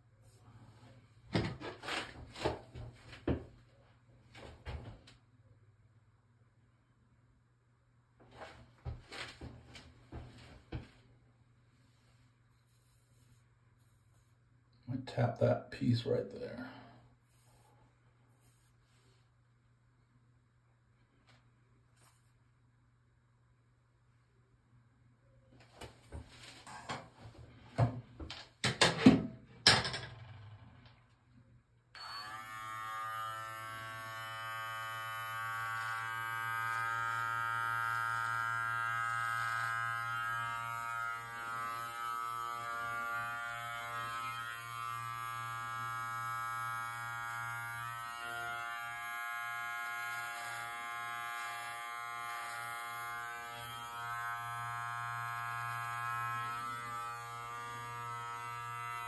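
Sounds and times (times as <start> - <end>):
beard trimmer buzzing: 32.0 - 59.0.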